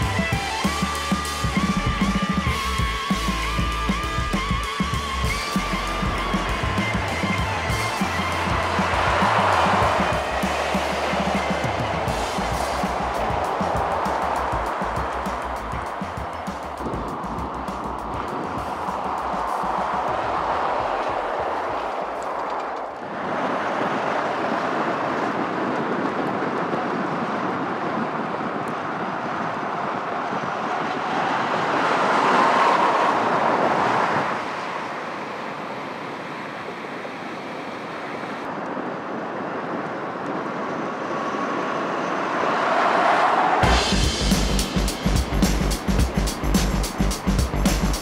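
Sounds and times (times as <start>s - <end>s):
truck tyre and wind noise: 0.0s - 48.0s.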